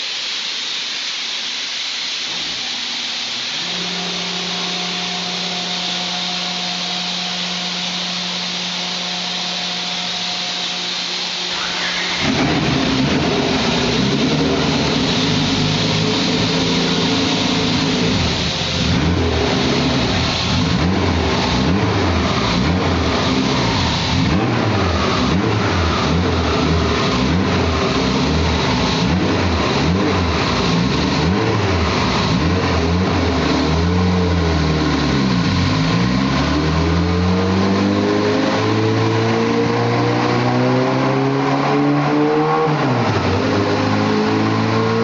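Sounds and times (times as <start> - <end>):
car engine revving: 3.5 - 45.0.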